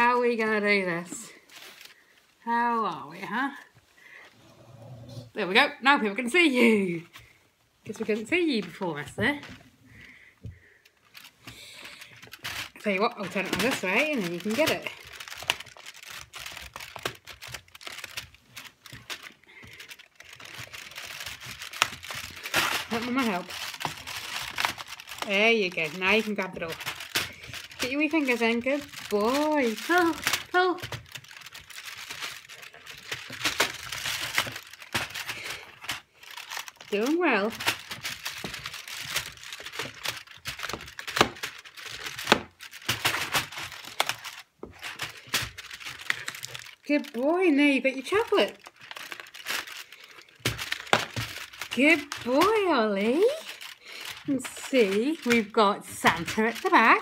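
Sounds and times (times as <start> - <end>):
cardboard rustle: 1.3 - 2.2, 10.9 - 57.0
sharp cracks and knocks: 37.6 - 46.9, 48.6 - 52.3.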